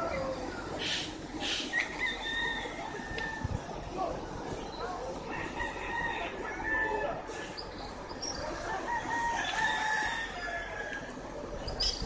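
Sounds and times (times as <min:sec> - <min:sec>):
rooster crowing: 0:01.8 - 0:03.5, 0:05.3 - 0:07.2, 0:08.7 - 0:11.1.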